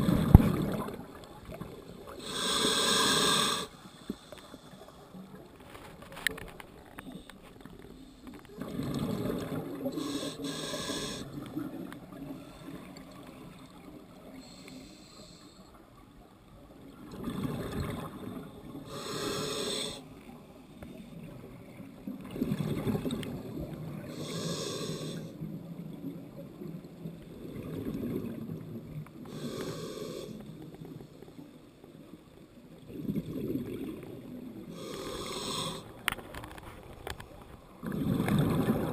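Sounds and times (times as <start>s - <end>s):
exhaled bubbles rumbling: 0.0s - 2.2s, 8.5s - 10.0s, 16.9s - 18.8s, 22.1s - 24.2s, 26.0s - 29.1s, 32.8s - 34.7s, 37.0s - 38.9s
regulator inhale hiss: 2.2s - 5.2s, 9.9s - 11.4s, 14.3s - 15.8s, 18.8s - 20.1s, 24.1s - 25.4s, 29.3s - 30.5s, 34.7s - 36.0s.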